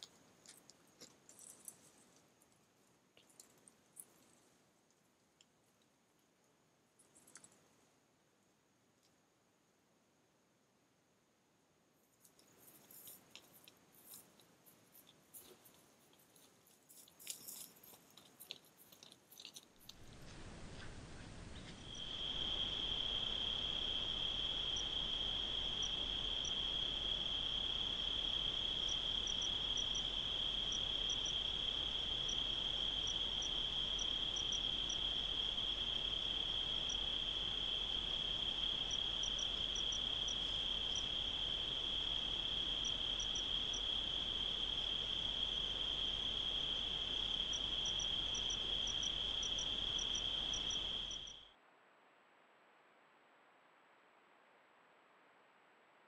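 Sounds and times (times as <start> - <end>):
night insects trilling: 21.7 - 51.6.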